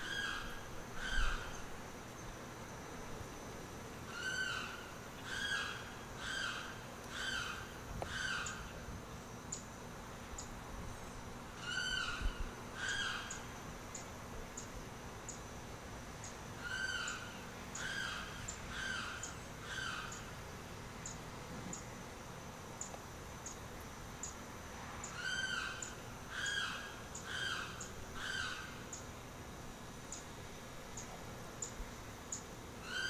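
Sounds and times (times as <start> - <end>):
bird wailing calls: 0.0 - 1.6, 4.1 - 8.8, 11.6 - 13.5, 16.6 - 20.3, 25.1 - 29.0.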